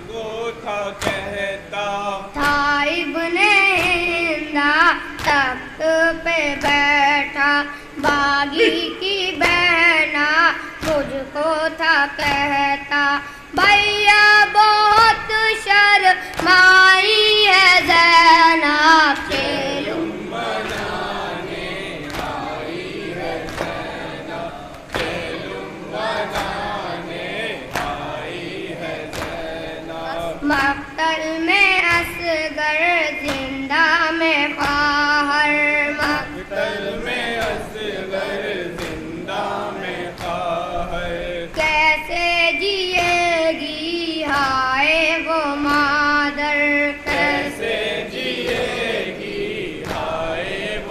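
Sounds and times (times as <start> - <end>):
boy chanting into a microphone: 0.0 - 23.0, 28.6 - 38.6, 39.3 - 49.3
chest-beating slaps: 1.0 - 1.5, 19.1 - 30.8, 33.2 - 33.6, 36.0 - 40.8, 47.1 - 50.8
group of voices chanting: 8.0 - 9.6, 19.2 - 30.8, 35.8 - 41.6, 47.0 - 50.9.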